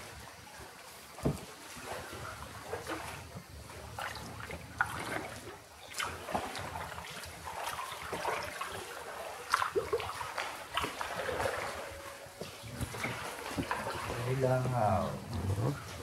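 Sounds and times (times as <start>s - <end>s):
water splashing and trickling: 0.0s - 16.0s
knocks on canoe: 1.2s - 1.5s.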